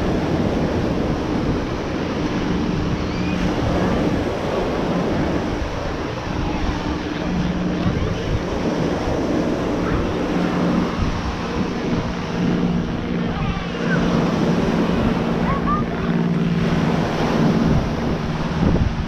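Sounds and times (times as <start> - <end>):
steady low hum: 0.0 - 19.0
surf washing: 0.0 - 19.0
wind buffeting microphone: 0.0 - 19.0
scattered voices: 6.0 - 16.3.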